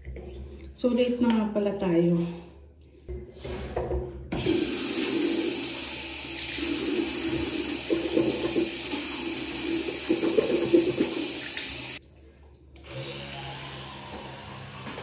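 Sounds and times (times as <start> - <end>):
tap running into basin: 4.4 - 12.0.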